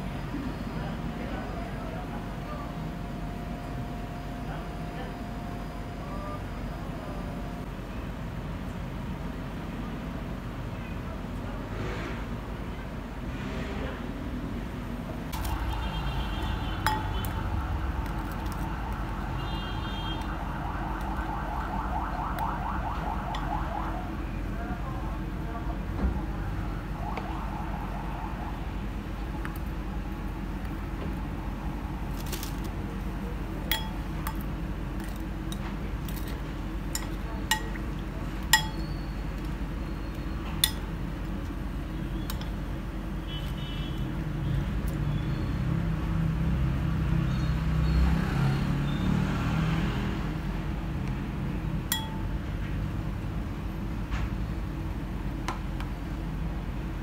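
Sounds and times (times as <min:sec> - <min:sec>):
metal spoon clinking on glass: 0:16.8 - 0:17.2, 0:33.7 - 0:34.5, 0:36.1 - 0:37.9, 0:38.5 - 0:39.0, 0:40.6 - 0:40.9, 0:51.9 - 0:52.3.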